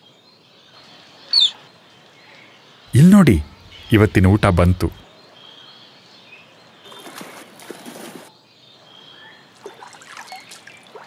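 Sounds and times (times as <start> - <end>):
otters splashing in water: 9.6 - 11.0.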